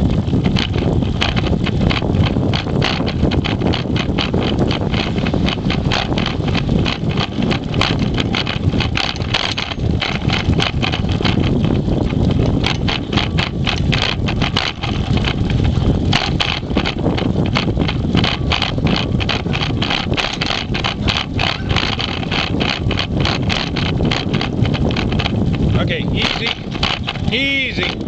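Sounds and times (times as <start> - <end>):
scooter vibration rumble: 0.0 - 28.0
rattling clicks: 0.1 - 28.0.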